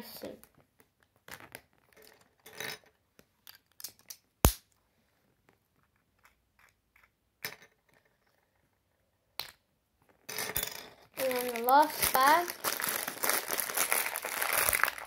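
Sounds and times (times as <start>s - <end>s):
plastic pieces clicking and clattering: 0.5s - 4.3s, 9.4s - 15.0s
plastic bag rustling: 11.2s - 15.0s.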